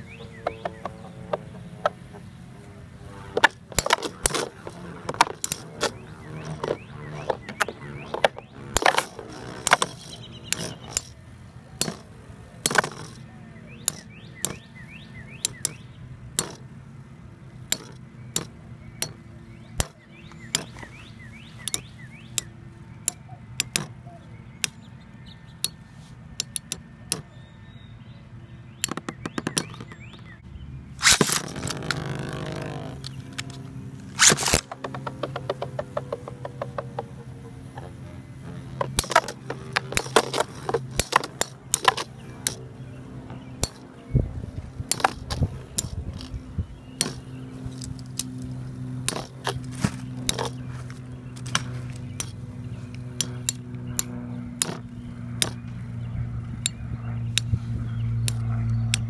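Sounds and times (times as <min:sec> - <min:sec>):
spinning tops whirring: 0:03.0 - 0:14.6, 0:16.4 - 0:16.7, 0:31.0 - 0:42.6, 0:47.0 - 0:50.6
metal tops clicking together: 0:03.4 - 0:11.2, 0:11.8 - 0:13.2, 0:13.8 - 0:14.6, 0:16.4 - 0:16.8, 0:17.6 - 0:19.2, 0:21.6 - 0:24.0, 0:31.0 - 0:42.6, 0:43.6 - 0:43.9, 0:44.9 - 0:46.4, 0:47.0 - 0:52.4.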